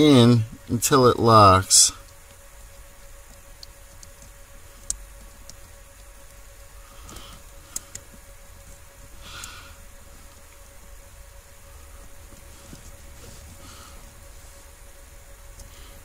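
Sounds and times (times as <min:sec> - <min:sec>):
faint steady hum: 0:00.0 - 0:16.0
soft rustles: 0:12.0 - 0:14.8.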